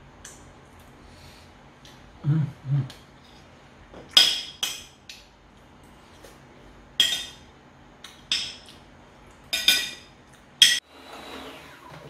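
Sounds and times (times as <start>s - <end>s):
metal spoon clinking on plate: 9.5s - 10.8s.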